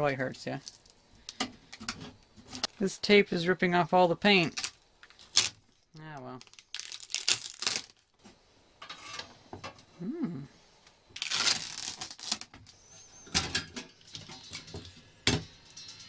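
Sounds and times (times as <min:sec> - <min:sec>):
tape peeling off metal: 0:04.5 - 0:05.6, 0:06.5 - 0:08.0, 0:11.2 - 0:12.8
metal plates clicking and knocking: 0:13.3 - 0:16.0.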